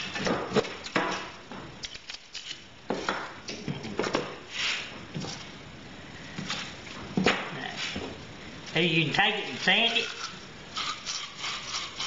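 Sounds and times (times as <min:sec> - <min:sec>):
blade scraping copper tubing: 0:09.2 - 0:12.0.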